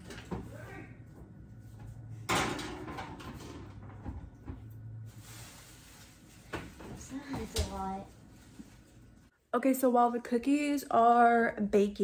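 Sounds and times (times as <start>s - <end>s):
metal baking sheet clattering: 2.3s - 4.1s.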